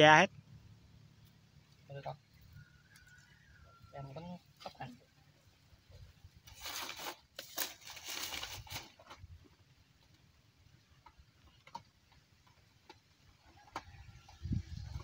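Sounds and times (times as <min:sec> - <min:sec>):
mesh bag rustling: 0:06.4 - 0:09.2.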